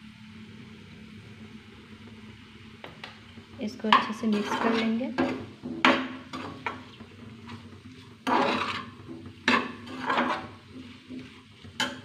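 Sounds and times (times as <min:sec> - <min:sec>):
metal spoon scraping steel pan: 0:03.9 - 0:06.8, 0:07.5 - 0:12.0.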